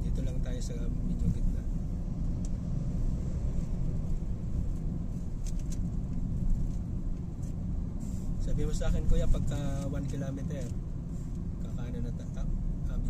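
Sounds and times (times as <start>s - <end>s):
car cabin rumble: 0.0s - 13.0s.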